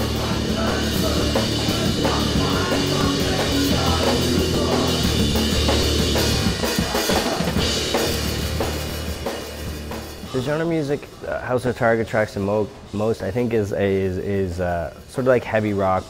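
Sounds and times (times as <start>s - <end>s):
rock band playing: 0.0s - 11.3s
drum kit: 0.0s - 16.0s.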